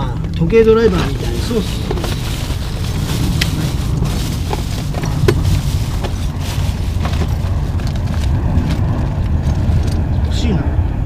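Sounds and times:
steady low rumble: 0.0s - 11.0s
tools rummaged in plastic crate: 0.8s - 8.8s.

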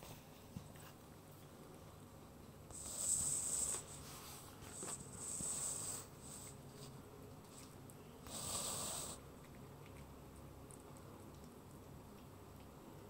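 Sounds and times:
kitten chewing and licking: 6.4s - 13.0s.

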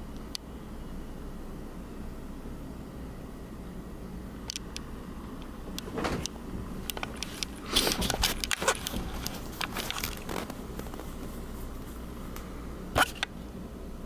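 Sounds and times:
handling rustling and clicks: 5.8s - 12.0s.

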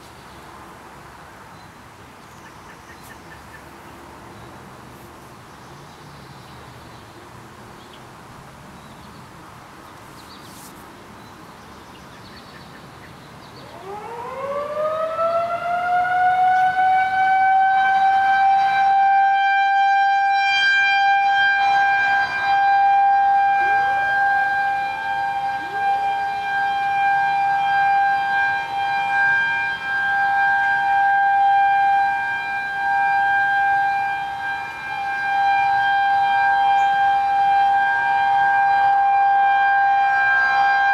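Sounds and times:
outdoor warning siren: 13.4s - 40.9s
distant sirens winding up: 13.6s - 40.9s.

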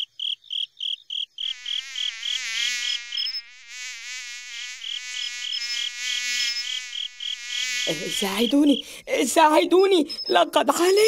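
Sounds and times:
cricket chirping: 0.0s - 11.0s
wavering high buzzing tone: 1.5s - 8.8s.

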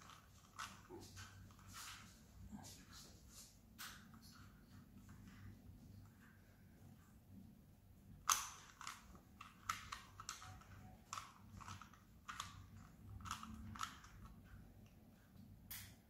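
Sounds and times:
puzzle cube clicking and rasping: 0.0s - 1.7s, 8.2s - 15.0s.

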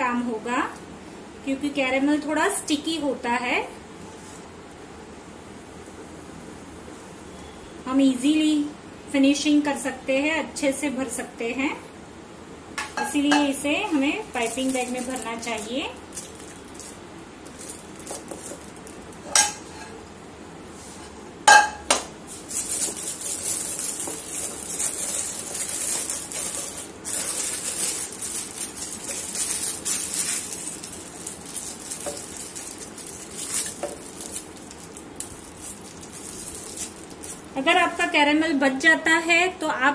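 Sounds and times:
plastic bag crinkling: 13.9s - 19.4s, 22.3s - 37.6s
caramel scraped into bag: 14.2s - 19.2s, 22.3s - 37.5s.

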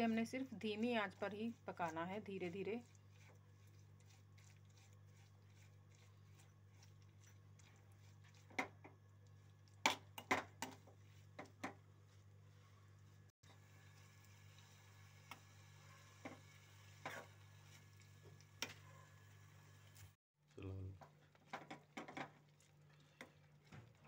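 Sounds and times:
metal spoon scraping pan: 16.3s - 17.9s.

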